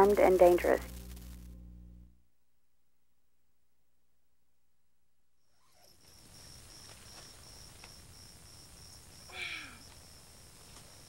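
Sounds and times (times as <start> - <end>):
insect chirring: 5.4 - 11.0.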